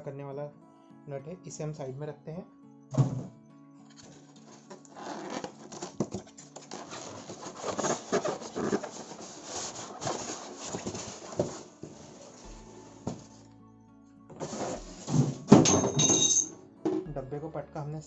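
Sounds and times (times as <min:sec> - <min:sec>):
foam and cardboard scraping: 0:04.0 - 0:13.4, 0:14.4 - 0:15.6.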